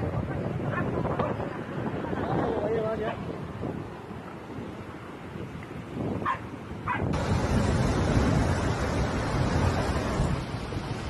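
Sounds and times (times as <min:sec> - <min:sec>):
floodwater rushing: 0:03.2 - 0:11.0.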